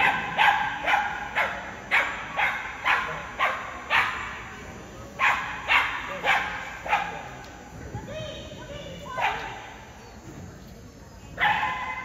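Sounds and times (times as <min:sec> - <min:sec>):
dog barking: 0:00.0 - 0:04.4, 0:05.2 - 0:07.3, 0:09.2 - 0:09.6, 0:11.4 - 0:12.0.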